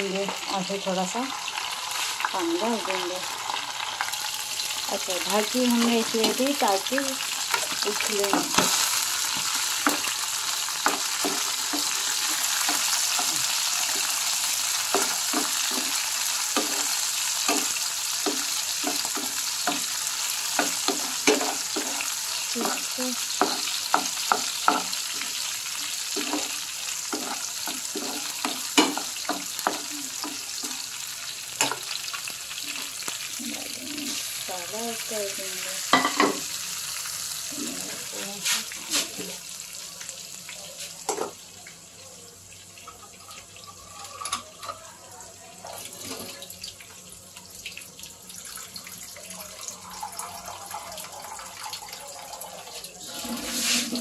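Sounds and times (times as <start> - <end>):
chillies sizzling in hot oil: 0.0 - 54.0
spatula scraping pan: 7.3 - 30.9, 52.6 - 54.0.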